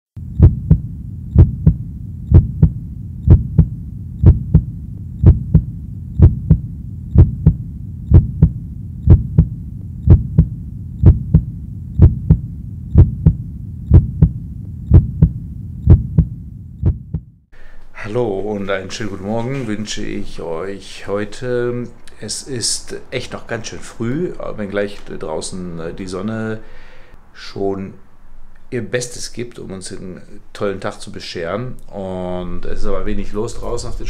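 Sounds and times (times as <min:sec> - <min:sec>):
heartbeat thumps: 0:00.2 - 0:17.4
low steady hum: 0:00.2 - 0:34.0.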